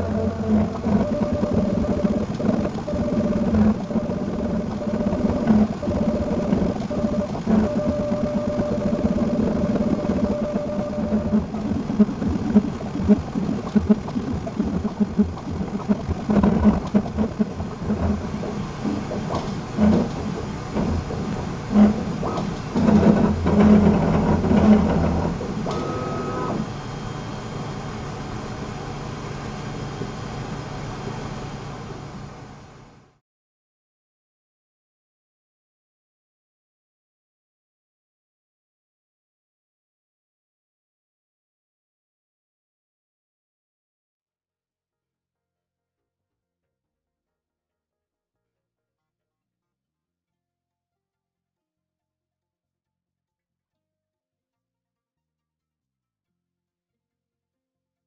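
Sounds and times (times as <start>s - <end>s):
three-d printer whirring: 0.0s - 33.0s.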